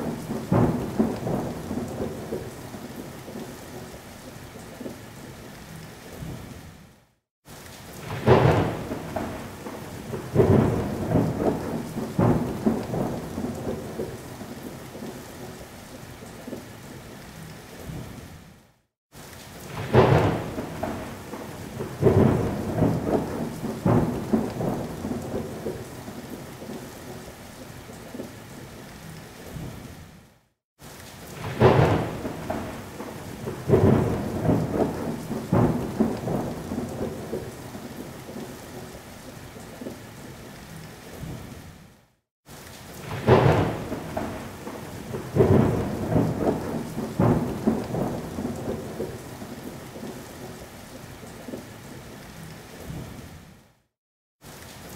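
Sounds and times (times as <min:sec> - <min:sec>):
thunder cracks: 0:00.0 - 0:02.5, 0:08.0 - 0:14.2, 0:19.7 - 0:25.8, 0:31.4 - 0:37.5, 0:43.0 - 0:49.2
thunder rumbling: 0:00.0 - 0:03.9, 0:08.0 - 0:15.1, 0:19.6 - 0:27.2, 0:31.4 - 0:38.9, 0:43.0 - 0:50.1
steady rain: 0:00.0 - 0:54.9.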